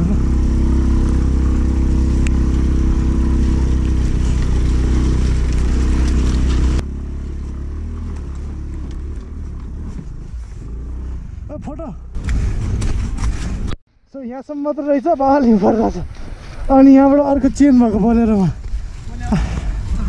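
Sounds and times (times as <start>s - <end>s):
scooter engine running: 0.0s - 11.3s
road and wind noise: 0.0s - 14.1s, 14.7s - 20.0s.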